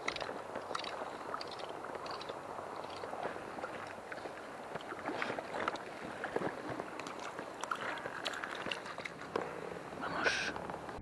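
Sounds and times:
small irregular clicks: 0.0s - 4.9s
water lapping and splashing: 0.0s - 11.0s.

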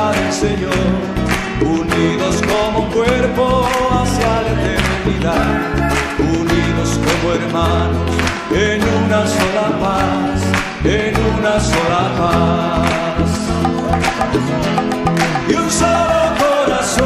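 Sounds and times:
bass line: 0.0s - 17.0s
guitar: 0.0s - 17.0s
person singing: 0.0s - 17.0s
sliding pitched melody: 13.6s - 16.3s.

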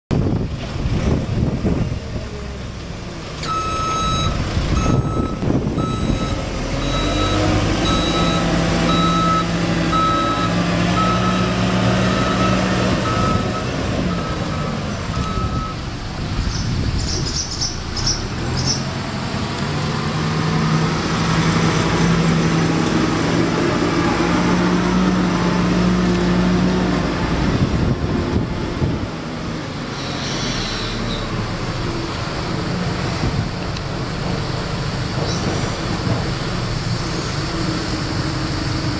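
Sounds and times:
diesel engine revving: 0.2s - 38.9s
reversing alarm beeping: 3.5s - 15.8s.

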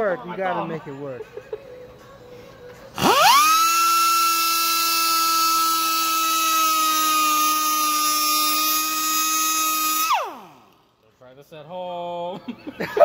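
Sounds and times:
rotary tool grinding metal: 3.0s - 10.9s.

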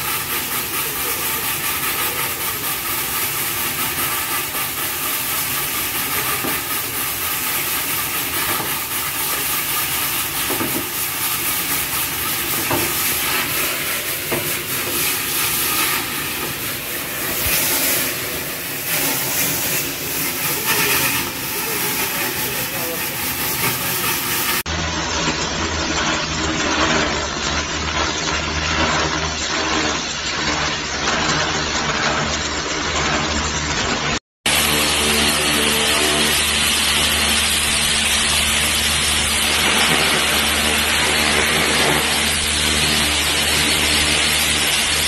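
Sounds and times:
loud hissing rush of cleaning equipment: 0.0s - 24.7s, 34.1s - 45.0s.

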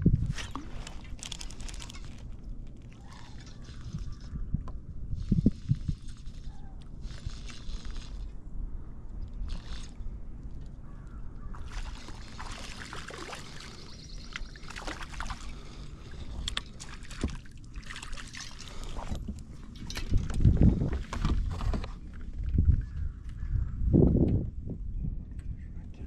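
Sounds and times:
steady low rumble: 0.0s - 26.0s
fish splashing at water surface: 11.6s - 19.0s.

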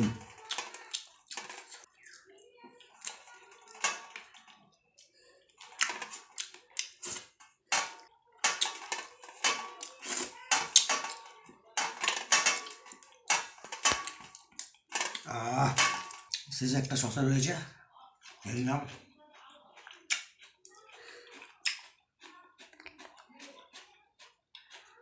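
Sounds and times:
wet smacking and slurping: 19.8s - 24.9s.

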